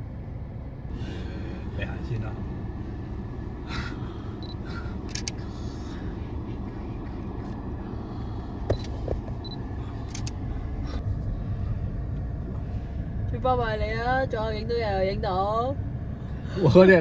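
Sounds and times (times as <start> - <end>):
car rumble inside cabin: 0.0 - 17.0
sharp clicks: 5.1 - 5.4, 10.0 - 10.4.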